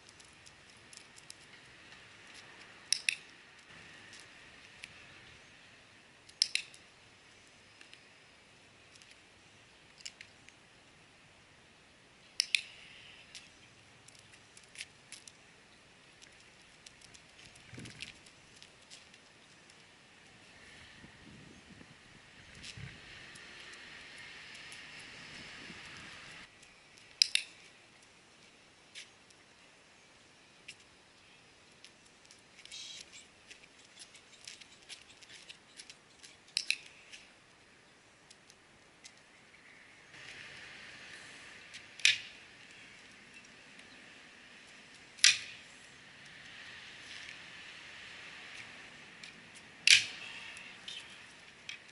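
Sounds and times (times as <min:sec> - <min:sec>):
sharp light clicks: 0:02.9 - 0:04.2, 0:06.2 - 0:06.8, 0:12.4 - 0:15.4, 0:26.5 - 0:27.7, 0:33.9 - 0:37.2.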